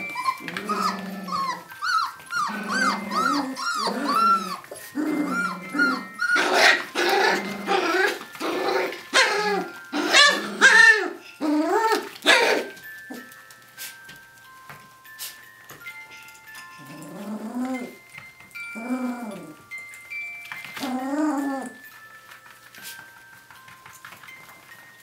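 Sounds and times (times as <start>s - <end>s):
puppies growling: 0.0s - 13.3s, 16.6s - 22.0s
puppies yipping: 0.0s - 13.3s.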